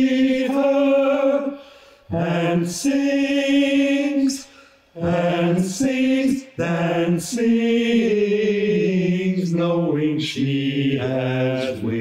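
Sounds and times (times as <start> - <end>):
choir singing held chords: 0.0 - 12.0.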